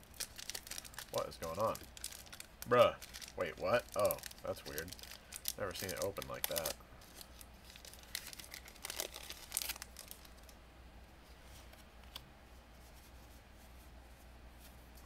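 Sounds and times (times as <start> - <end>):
foil wrapper crinkling and tearing: 0.0 - 10.6.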